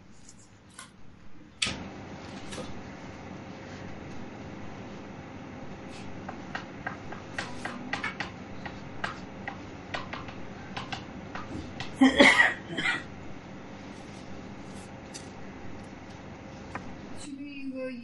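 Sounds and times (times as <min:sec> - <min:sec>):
chalk tapping on blackboard: 0:05.9 - 0:12.0.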